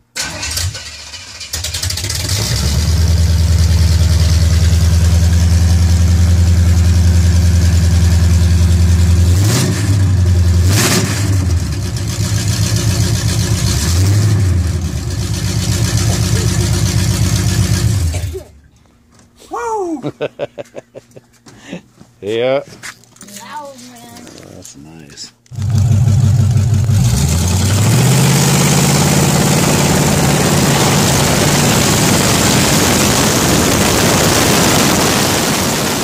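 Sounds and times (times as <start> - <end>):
engine starting: 0.0 - 3.0
deep exhaust rumble: 2.0 - 18.7, 25.5 - 36.0.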